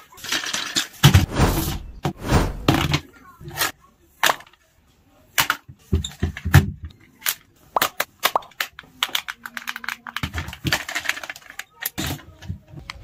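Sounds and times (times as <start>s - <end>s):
heavy thuds: 1.1s - 2.9s.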